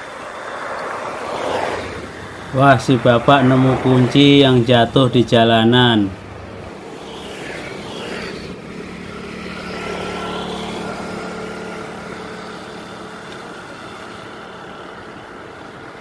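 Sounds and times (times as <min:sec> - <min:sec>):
motor scooter engine passing: 0:00.0 - 0:16.0
wind: 0:00.0 - 0:16.0.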